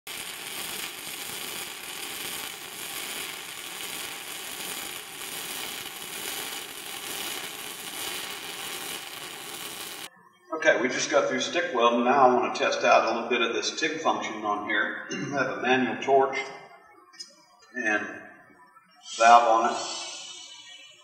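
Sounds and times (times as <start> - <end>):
welding arc crackling and sizzling: 0.0 - 10.1.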